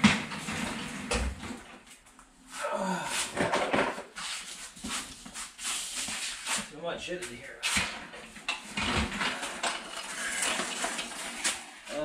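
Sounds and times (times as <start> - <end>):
tools clattering and scraping: 3.2 - 5.2, 7.6 - 12.0.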